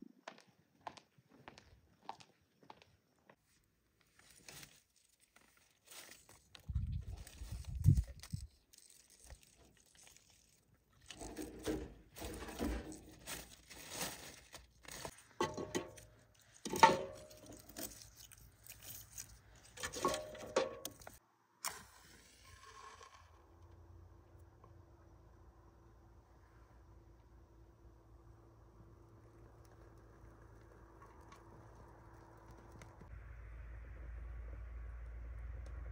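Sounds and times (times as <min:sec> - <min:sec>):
firewood scraping and clattering: 0:10.4 - 0:21.2.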